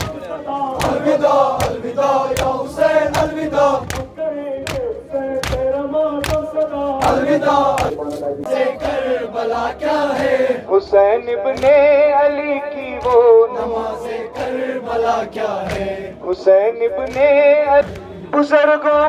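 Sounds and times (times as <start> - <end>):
hand slaps on chests: 0.0 - 8.0, 11.5 - 11.8, 13.0 - 13.4, 15.4 - 16.0, 17.0 - 18.2
mourners chanting in unison: 0.0 - 12.1, 13.1 - 16.4.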